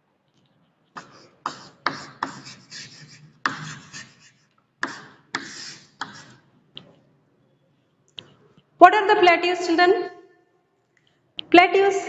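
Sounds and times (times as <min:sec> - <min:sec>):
chalk writing on blackboard: 0:01.0 - 0:06.5.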